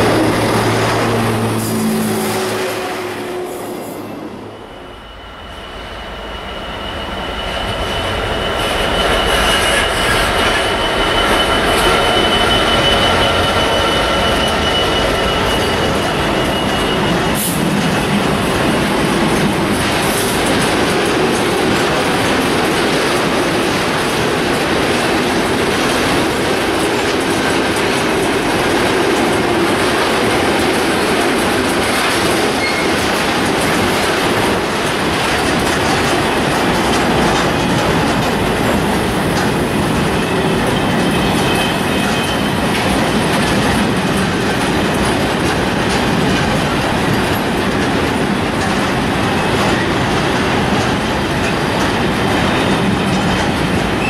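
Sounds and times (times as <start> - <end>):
high wheel squeal: 0.0 - 18.9, 32.4 - 33.1, 38.8 - 43.2
freight train rolling past: 0.0 - 54.0
wagons rumbling and clattering: 9.9 - 54.0.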